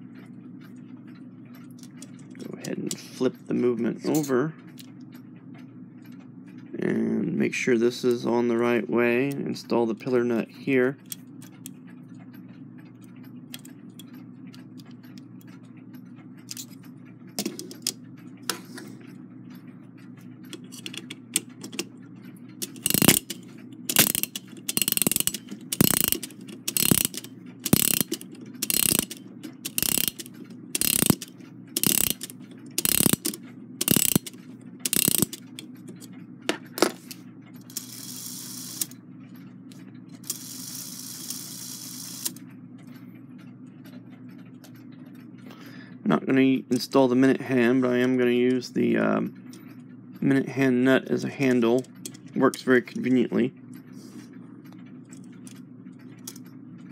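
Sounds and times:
soft whir: 0:00.0 - 0:45.4
clock key winding ratchet clicks: 0:01.4 - 0:06.7, 0:08.1 - 0:18.6, 0:19.4 - 0:36.3, 0:37.1 - 0:43.0, 0:51.4 - 0:53.9, 0:54.6 - 0:56.6.

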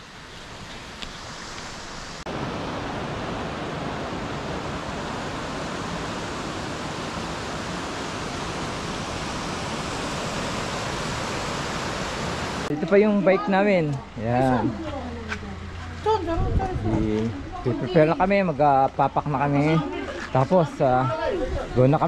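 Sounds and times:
steady rushing hiss: 0:00.0 - 0:14.3.

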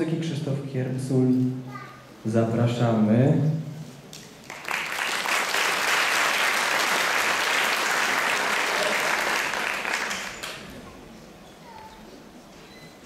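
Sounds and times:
audience applauding: 0:04.2 - 0:10.8.

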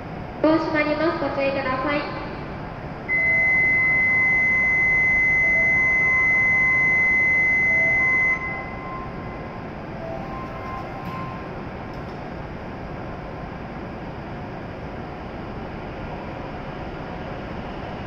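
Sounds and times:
station hum: 0:00.0 - 0:18.0
steady high electronic buzzer tone: 0:03.1 - 0:11.6
short lower electronic tones: 0:03.1 - 0:11.7.

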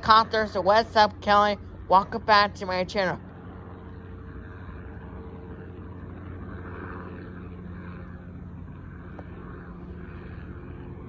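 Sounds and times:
distant helicopter drone: 0:00.0 - 0:11.0.

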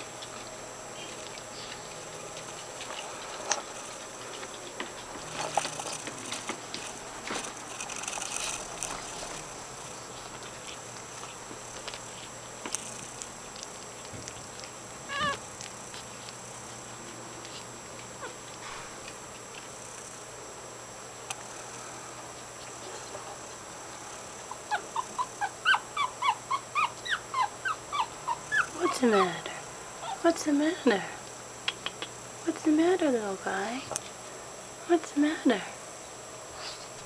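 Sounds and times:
puppy squealing: 0:15.1 - 0:15.4, 0:24.5 - 0:30.2.

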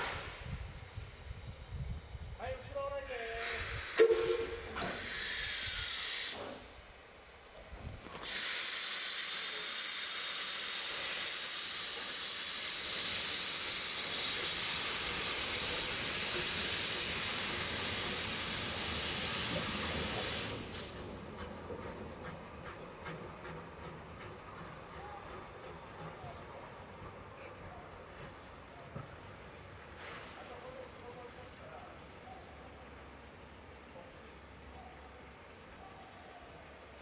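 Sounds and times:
steam locomotive venting steam: 0:00.0 - 0:00.6, 0:02.8 - 0:06.7, 0:07.8 - 0:28.7.

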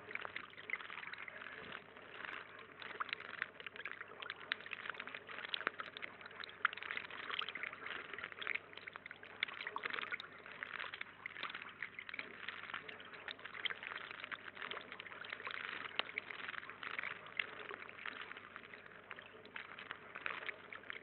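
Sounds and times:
water trickling into pond: 0:00.0 - 0:21.0.

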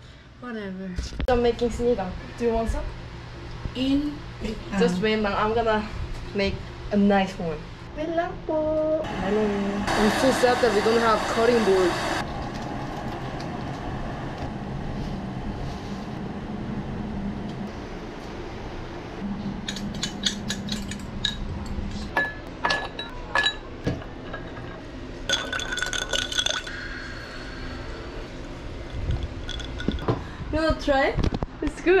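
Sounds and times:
spoon clinking in glass: 0:25.3 - 0:26.8, 0:29.2 - 0:30.2.

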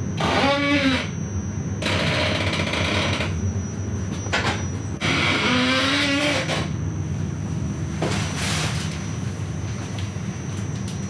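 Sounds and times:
faint high whine: 0:00.0 - 0:11.0.

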